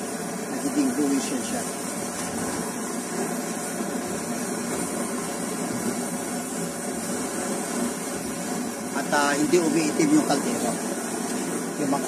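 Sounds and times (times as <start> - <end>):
stove burner rushing: 0.0 - 12.0.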